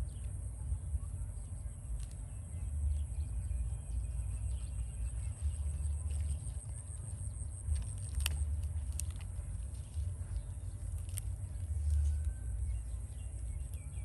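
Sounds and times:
wind rumble on microphone: 0.0s - 14.0s
lettuce leaves rustling: 4.3s - 14.0s.

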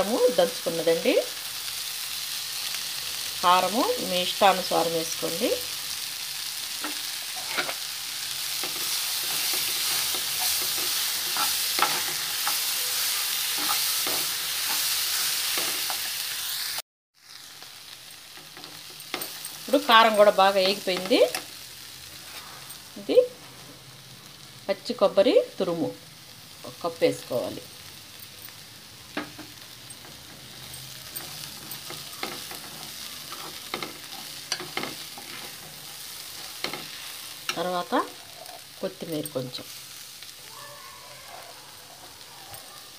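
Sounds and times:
vegetables sizzling in hot oil: 0.0s - 42.9s
spatula scraping pan: 6.8s - 16.2s, 29.2s - 38.7s.

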